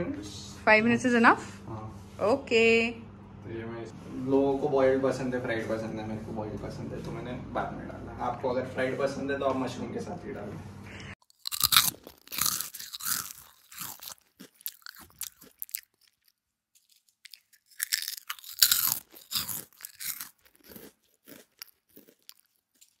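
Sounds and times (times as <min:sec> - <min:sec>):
crunching and rustling: 0:11.2 - 0:23.0.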